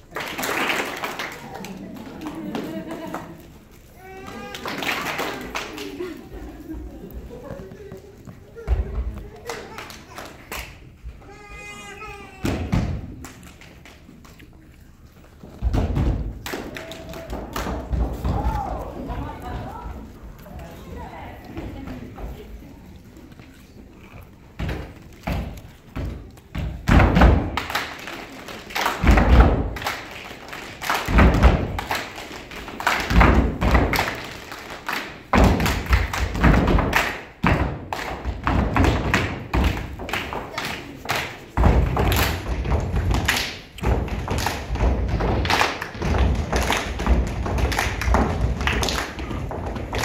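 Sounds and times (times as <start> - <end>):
hand claps: 27.0 - 50.0.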